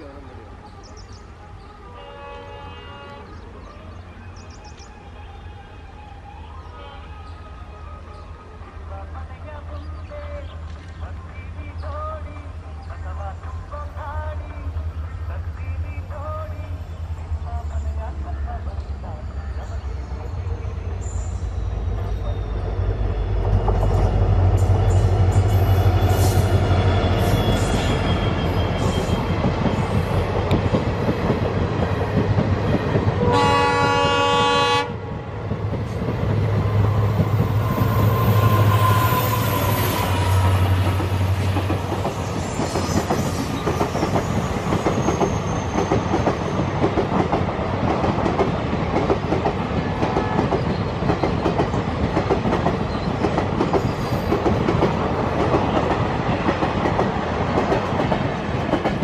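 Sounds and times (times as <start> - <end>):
diesel locomotive engine droning: 0.0 - 59.0
train horn blast: 1.9 - 3.4, 33.2 - 35.0, 37.6 - 41.5
train wheel clatter: 39.6 - 59.0.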